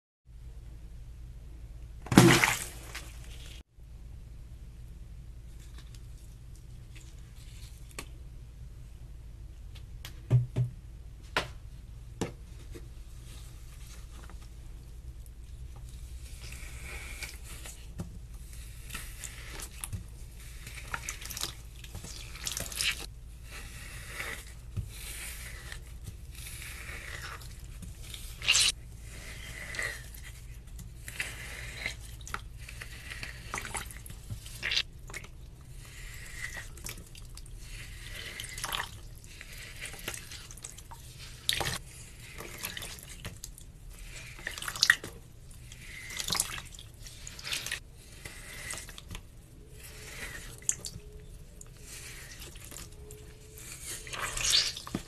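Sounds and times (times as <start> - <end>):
wet foam crackling and squishing: 13.6 - 55.0.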